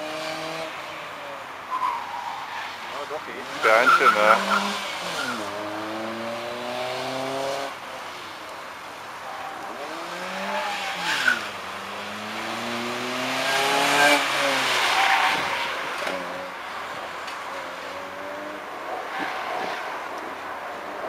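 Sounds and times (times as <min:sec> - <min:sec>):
car engine revving: 0:03.3 - 0:07.8, 0:09.8 - 0:16.5
tyres squealing: 0:03.5 - 0:05.5.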